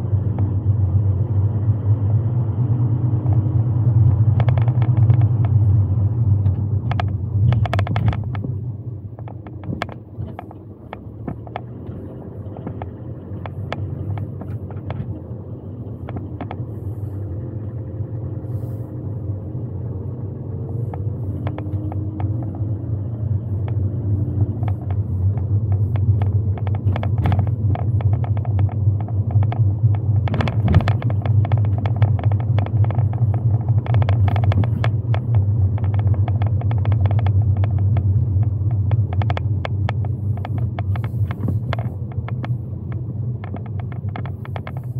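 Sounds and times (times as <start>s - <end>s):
car road and engine rumble: 0.0s - 44.9s
small ticks and rattles: 24.5s - 44.9s.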